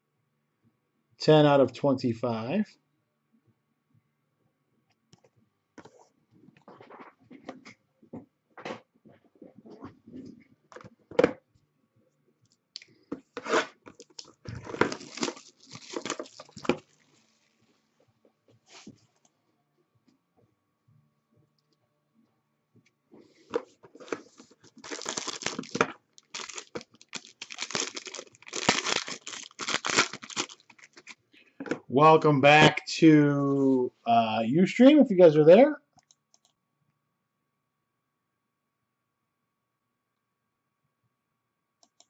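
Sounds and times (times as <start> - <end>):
foil pack tearing and crinkling: 14.0 - 17.1, 24.1 - 31.2.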